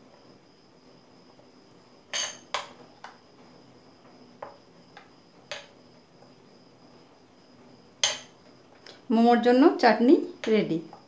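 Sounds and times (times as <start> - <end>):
metal spoon clinking ceramic bowl: 2.1 - 2.6, 8.0 - 8.3.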